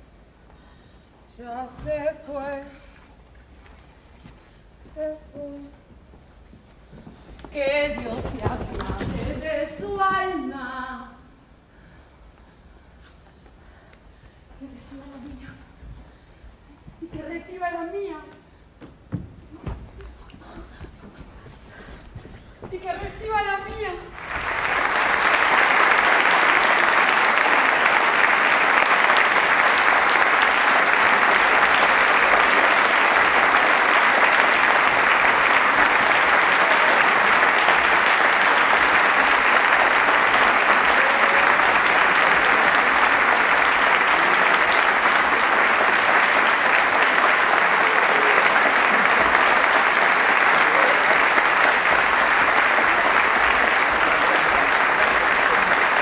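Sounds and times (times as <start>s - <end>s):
audience applauding: 24.1s - 56.0s.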